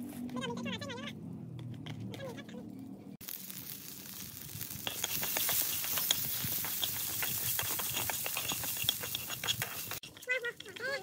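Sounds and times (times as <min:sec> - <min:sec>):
food sizzling in hot oil: 0:03.2 - 0:10.0.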